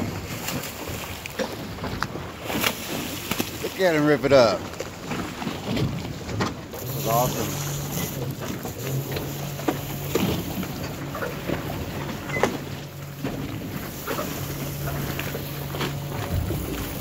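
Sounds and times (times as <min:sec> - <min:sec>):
small knocks and splashes: 0:00.0 - 0:03.9
boat engine idling: 0:00.0 - 0:17.0
water noise: 0:00.0 - 0:17.0.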